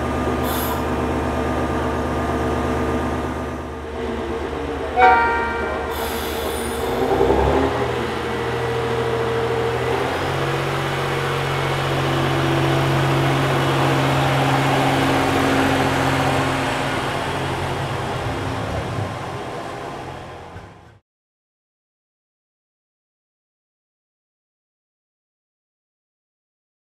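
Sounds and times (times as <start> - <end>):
diesel railcar engine humming: 0.0 - 21.0.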